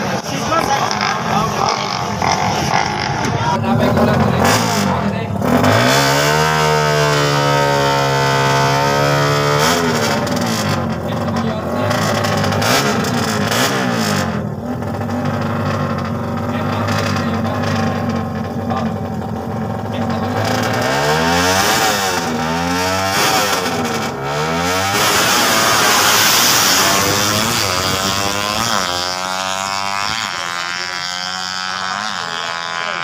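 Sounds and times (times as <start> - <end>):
motorcycle engines revving: 0.0 - 33.0.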